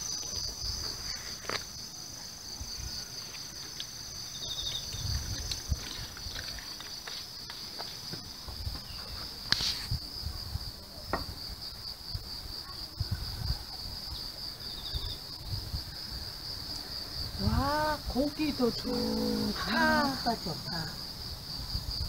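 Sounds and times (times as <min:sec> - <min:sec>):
insects buzzing: 0:00.0 - 0:22.0
wind rumbling on microphone: 0:04.4 - 0:07.1, 0:08.4 - 0:18.8, 0:21.0 - 0:22.0.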